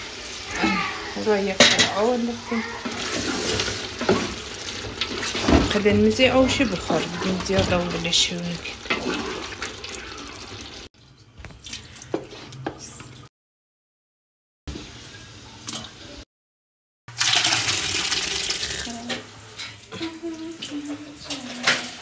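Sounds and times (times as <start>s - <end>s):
wooden spatula scraping a pot: 1.9s - 9.8s.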